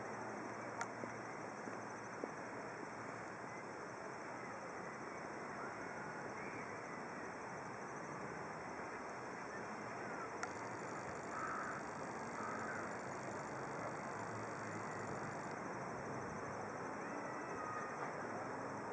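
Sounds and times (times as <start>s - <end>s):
outdoor background hiss: 0.0s - 18.9s
faint bird calls: 11.3s - 11.8s, 12.4s - 12.9s, 17.0s - 18.1s.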